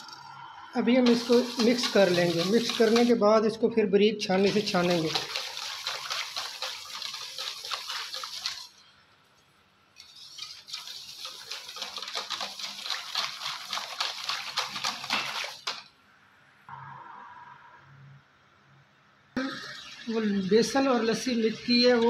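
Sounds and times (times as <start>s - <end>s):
whisk sloshing in batter: 1.0s - 3.2s, 4.3s - 8.8s, 10.0s - 15.9s.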